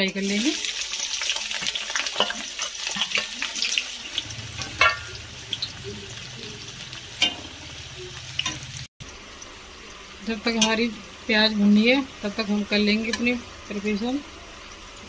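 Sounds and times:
onions sizzling in hot oil: 0.0s - 15.0s
low hum: 4.2s - 9.8s.

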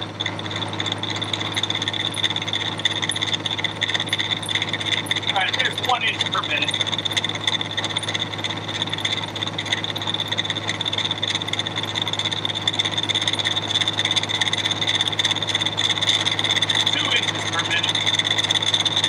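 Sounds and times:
high whine: 0.0s - 10.3s, 15.2s - 19.0s
milling machine cutting steel: 0.0s - 19.0s
motor hum: 0.0s - 19.0s.

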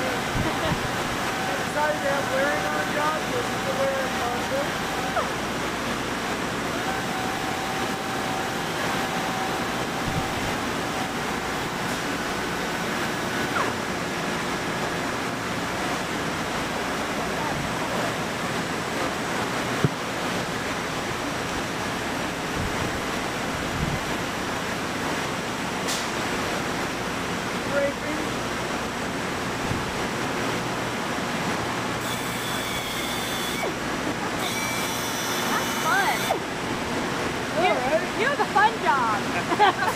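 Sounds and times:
shop machinery rush: 0.0s - 18.9s, 32.0s - 37.6s
orbital sander whine: 0.2s - 5.6s, 6.6s - 12.6s, 32.0s - 33.8s, 34.4s - 36.5s
pneumatic tool hissing and whining: 32.0s - 33.8s, 34.4s - 36.4s.

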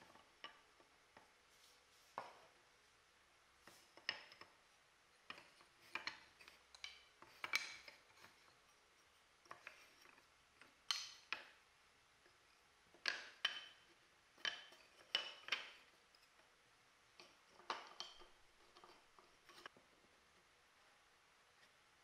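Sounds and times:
wooden slats clacking: 13.0s - 13.8s, 14.4s - 16.0s.

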